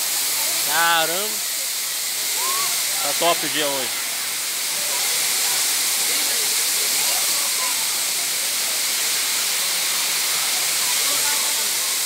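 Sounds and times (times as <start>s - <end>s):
faint voices: 0.0s - 12.0s
waterfall rushing: 0.0s - 12.0s.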